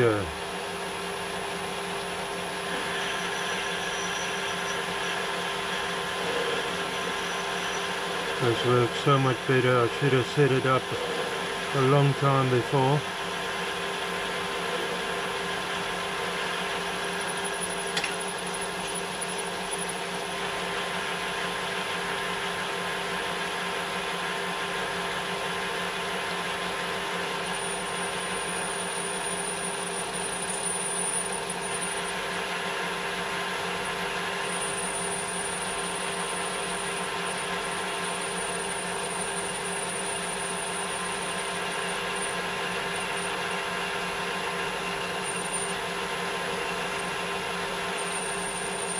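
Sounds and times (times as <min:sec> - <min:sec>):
metal lathe running: 0:00.0 - 0:48.9.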